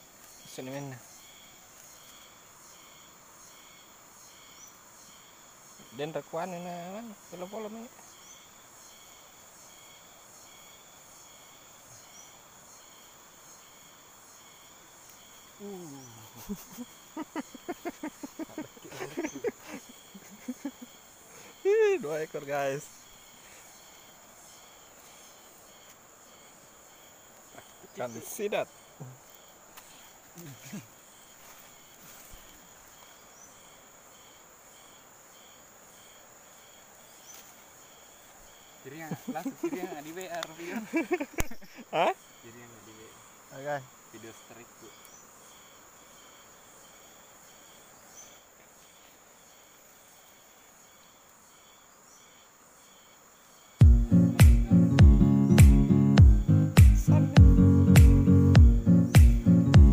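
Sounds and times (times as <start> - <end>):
insect chorus chirring: 0.0 - 59.9
man's drawn out voice: 56.8 - 57.8.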